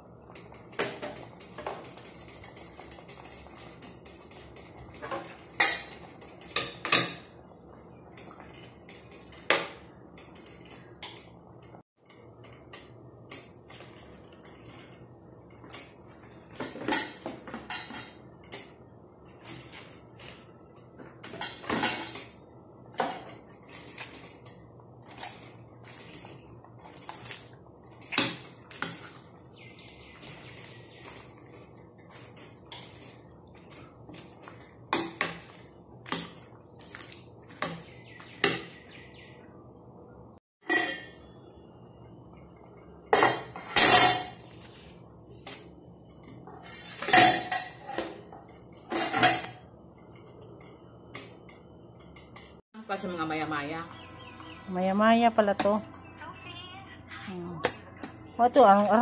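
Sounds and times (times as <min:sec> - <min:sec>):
metal utensils clinking on pot: 0:00.3 - 0:07.3, 0:40.6 - 0:41.2, 0:46.6 - 0:51.3.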